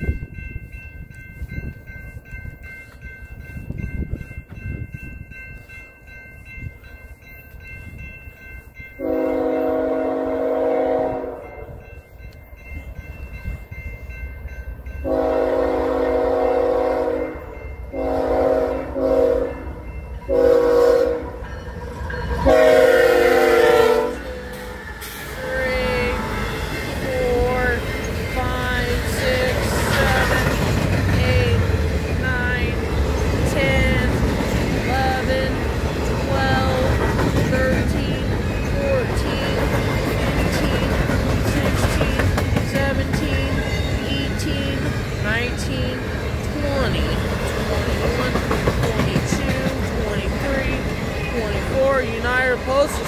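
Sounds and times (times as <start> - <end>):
low rumble of train: 0.0 - 53.0
railroad crossing bells ringing: 0.0 - 53.0
locomotive horn blasts: 9.0 - 11.6, 15.0 - 19.6, 20.3 - 21.4, 22.4 - 24.4.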